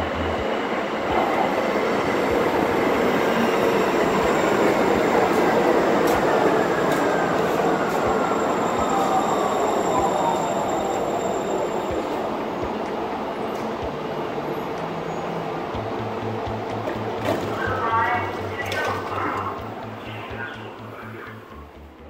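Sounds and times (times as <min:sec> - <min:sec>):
train wheels rumbling on rails: 0:00.0 - 0:22.0
train brakes whining: 0:01.2 - 0:15.6.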